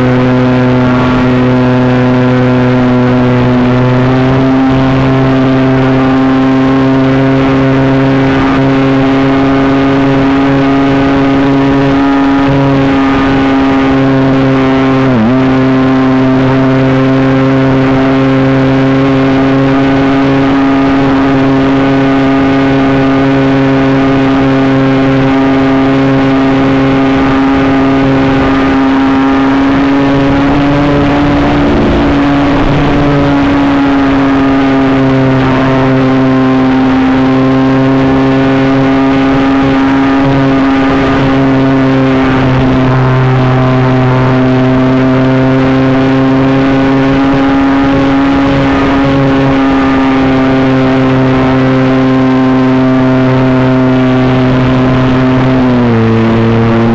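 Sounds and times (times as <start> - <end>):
model plane motor whining: 23.4 - 44.8.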